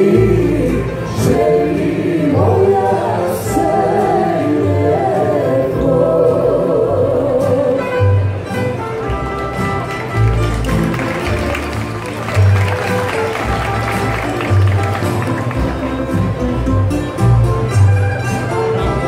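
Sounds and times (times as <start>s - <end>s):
women singing: 0.0s - 8.0s
plucked string orchestra playing: 0.0s - 19.0s.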